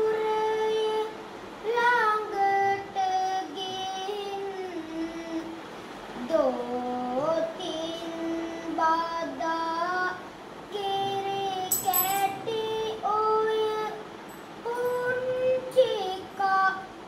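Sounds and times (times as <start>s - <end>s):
child chanting verse: 6.2s - 14.0s, 14.7s - 17.0s.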